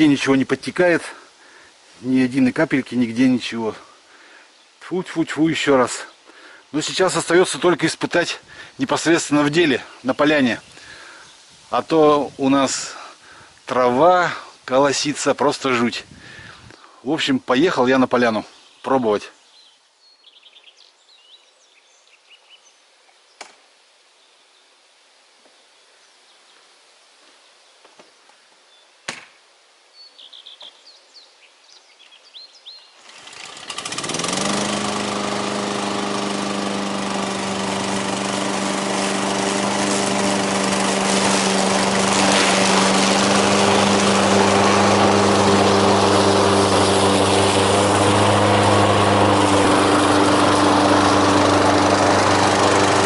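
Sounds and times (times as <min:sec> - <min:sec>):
birds chirping: 0:08.5 - 0:12.0, 0:18.0 - 0:23.5, 0:30.0 - 0:33.2
lawn mower engine: 0:33.0 - 0:53.0.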